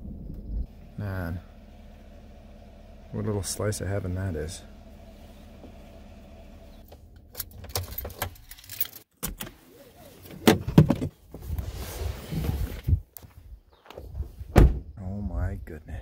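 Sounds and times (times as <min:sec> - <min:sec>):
keys jangling in ignition: 0:07.3 - 0:09.1.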